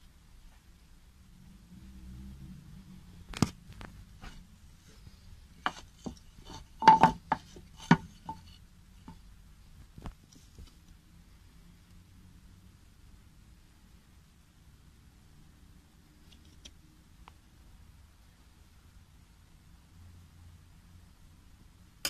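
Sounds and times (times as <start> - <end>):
wooden board knocking on floor: 5.7 - 8.4.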